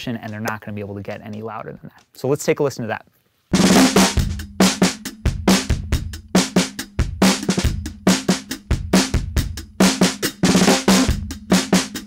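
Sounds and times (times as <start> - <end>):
distorted drum kit groove: 3.5 - 12.0.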